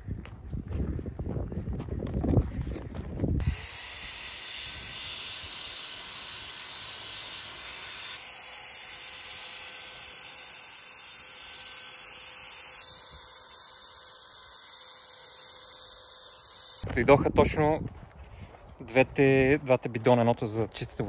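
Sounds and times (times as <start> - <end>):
paint spray gun hissing: 3.4 - 16.8.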